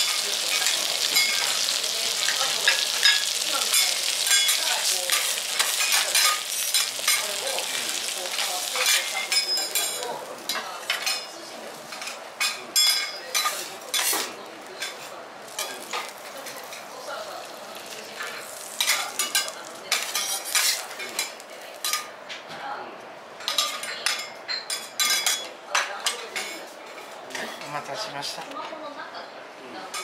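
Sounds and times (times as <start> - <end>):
oil sizzling on a griddle: 0.0 - 22.1.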